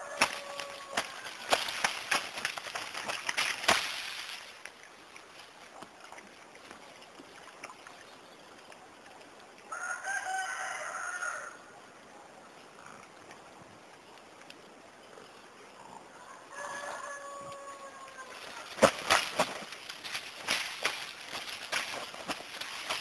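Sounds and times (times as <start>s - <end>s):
rooster crowing: 0.0s - 1.4s, 9.7s - 11.6s, 16.2s - 18.7s
rustling in dry leaves: 0.0s - 5.8s, 16.5s - 23.0s.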